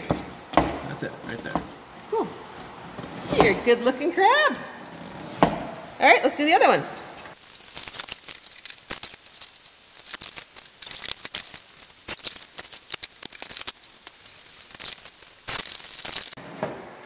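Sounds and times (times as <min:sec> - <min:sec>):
shells clicking and scraping: 0:07.3 - 0:16.4.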